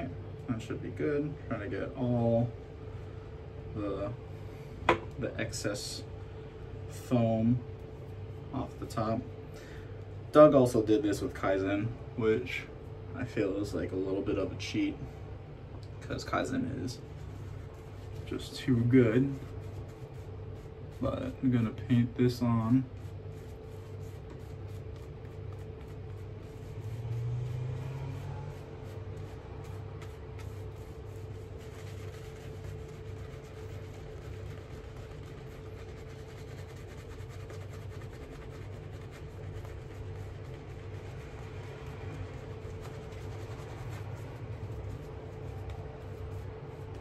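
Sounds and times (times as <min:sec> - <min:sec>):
steady low hum: 0:00.0 - 0:47.0
shaving brush swishing on skin: 0:16.9 - 0:47.0.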